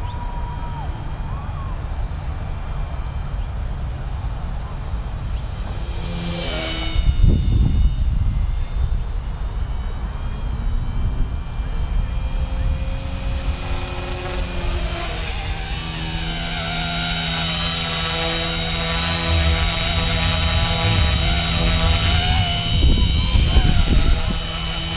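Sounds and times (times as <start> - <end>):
model helicopter rotor whine: 0.0 - 24.9.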